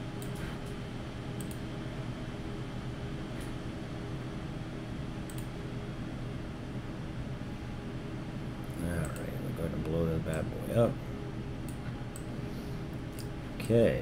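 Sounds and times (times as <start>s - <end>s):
computer hum and fan hiss: 0.0s - 14.0s
faint mouse clicks: 1.4s - 1.6s, 5.3s - 5.5s, 9.0s - 9.3s.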